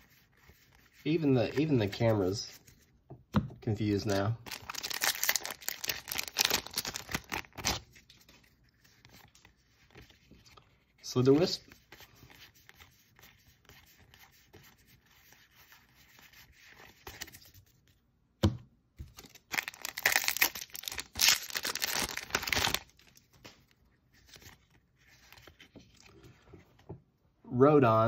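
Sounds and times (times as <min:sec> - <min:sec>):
cards rustling: 0:00.0 - 0:02.9, 0:03.8 - 0:18.0, 0:19.1 - 0:26.5
foil wrapper tearing and crinkling: 0:04.5 - 0:07.9, 0:19.2 - 0:23.2.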